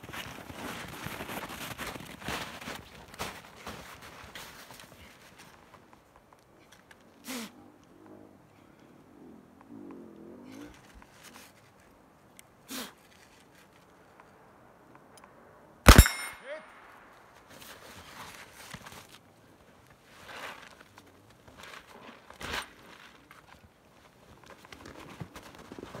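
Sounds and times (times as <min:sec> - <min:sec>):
scuffing and rustling in snow: 0:00.0 - 0:05.6
bullet ringing on steel target: 0:15.9 - 0:16.7
rifle shot: 0:15.9 - 0:17.0.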